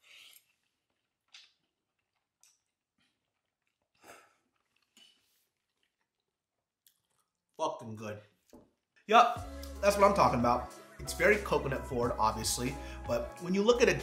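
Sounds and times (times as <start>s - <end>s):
chewing and sipping soup: 0.0s - 7.6s.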